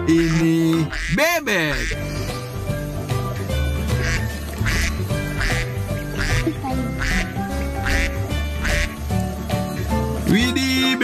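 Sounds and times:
duck quacking: 0.0s - 2.3s, 3.3s - 9.0s
background music with steady beat: 0.0s - 11.0s.

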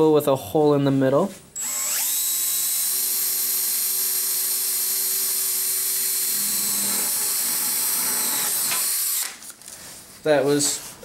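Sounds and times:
cordless drill drilling aluminum: 1.6s - 9.4s.

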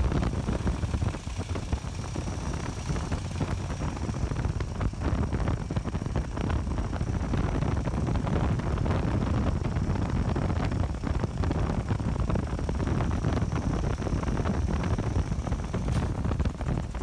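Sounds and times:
motorcycle engine: 0.0s - 17.0s
road rumble: 0.0s - 17.0s
wind buffeting microphone: 0.0s - 17.0s.

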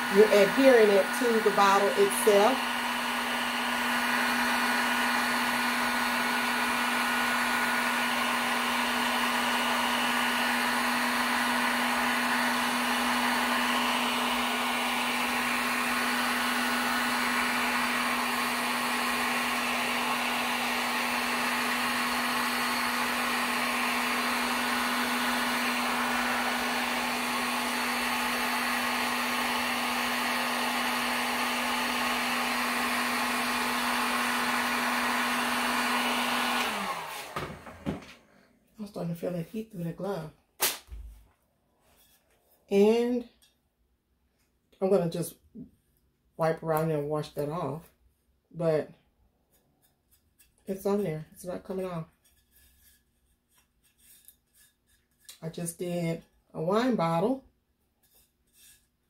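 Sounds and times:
heat gun blowing air: 0.0s - 38.2s, 40.6s - 40.9s.

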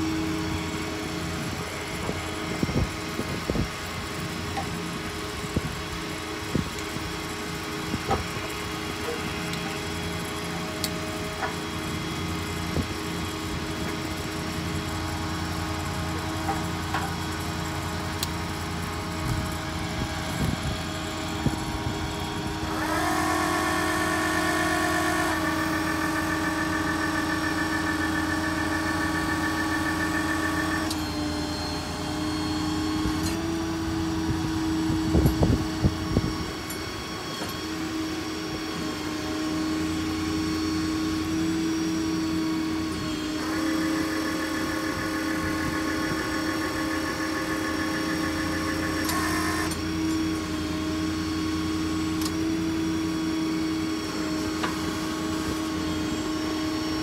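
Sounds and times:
diesel engine idling: 0.0s - 32.9s
hydraulic whine: 0.0s - 57.0s.

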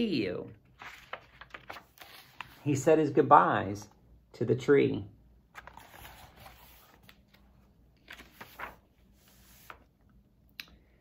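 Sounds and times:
book rustling: 0.6s - 2.8s, 5.5s - 10.2s.

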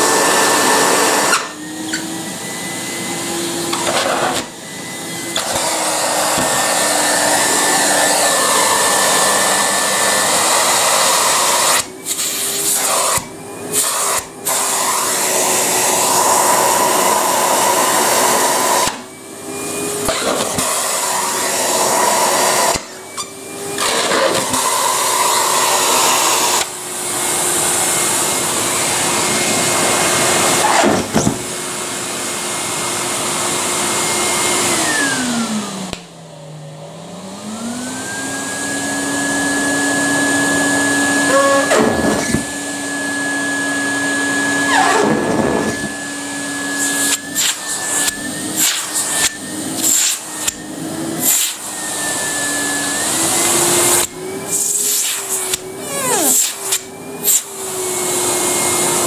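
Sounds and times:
vacuum motor winding down: 0.0s - 13.9s, 32.1s - 59.0s
vacuum cleaner running: 0.0s - 59.0s.

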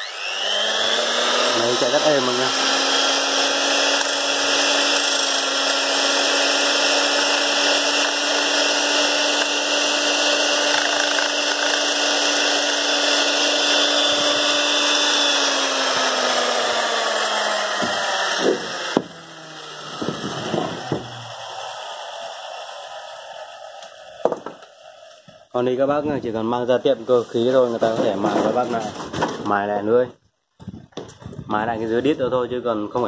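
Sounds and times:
electric metal shear running: 0.0s - 25.3s
motor winding down: 0.0s - 25.4s.

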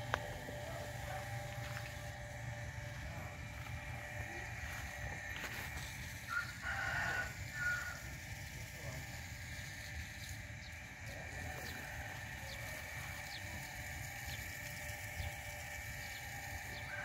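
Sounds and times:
steady low rumble: 0.0s - 6.3s
rooster crowing: 6.3s - 8.2s, 16.7s - 17.0s.

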